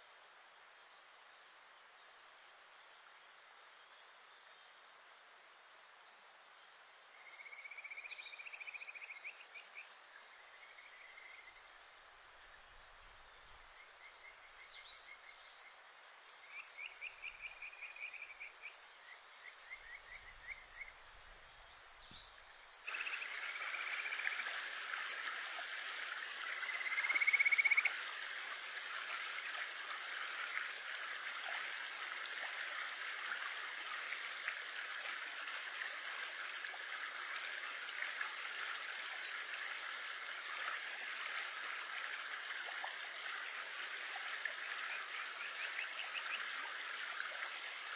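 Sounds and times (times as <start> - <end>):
frogs calling: 22.9 - 24.8, 26.3 - 28.4.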